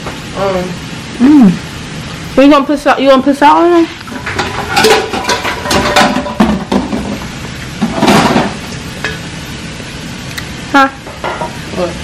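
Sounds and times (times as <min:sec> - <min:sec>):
metal kitchenware clattering: 0:04.1 - 0:07.2, 0:07.8 - 0:09.2, 0:11.1 - 0:11.6.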